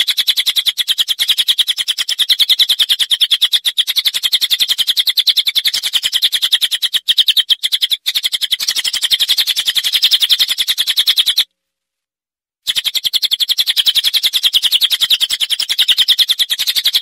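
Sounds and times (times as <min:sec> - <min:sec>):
songbird rapid chattering song: 0:00.0 - 0:11.5, 0:12.6 - 0:17.0.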